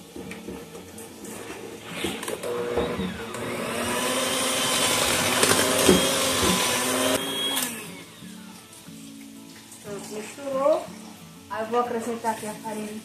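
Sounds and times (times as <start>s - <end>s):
electric hand mixer whine: 1.8s - 8.4s.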